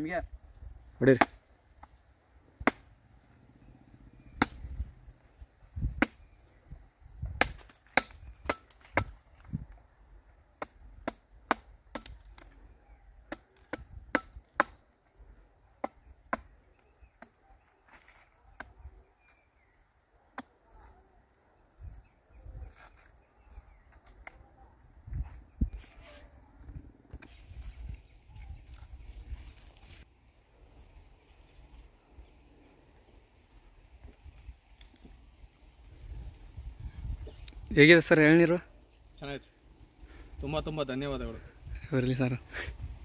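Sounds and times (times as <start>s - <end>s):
sickle blade chopping coconut husk: 1.2s - 1.4s, 2.6s - 2.9s, 4.3s - 4.8s, 5.9s - 6.4s, 7.4s - 9.5s, 10.6s - 12.6s, 13.3s - 14.8s, 15.8s - 18.8s.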